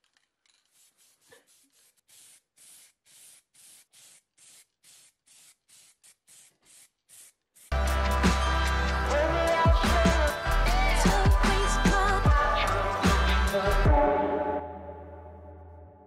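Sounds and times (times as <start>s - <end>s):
spray paint can hissing: 0.5s - 7.9s.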